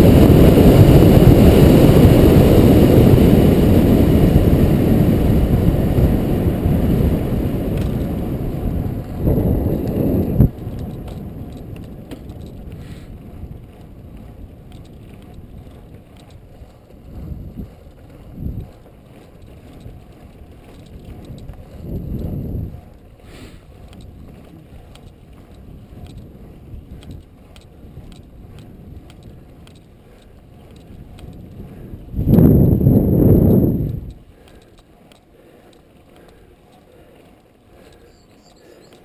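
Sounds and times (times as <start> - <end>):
wind rushing over microphone: 0.0 - 34.6
faint clicks: 22.9 - 26.3, 26.9 - 32.4, 33.4 - 39.0.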